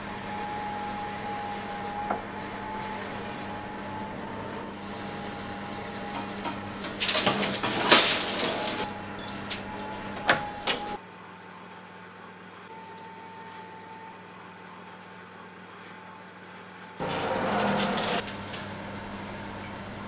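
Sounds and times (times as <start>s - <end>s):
oven beeps: 0.0s - 11.0s
oven clicks: 0.0s - 11.0s, 17.0s - 20.0s
oven humming: 0.0s - 11.0s, 13.6s - 20.0s.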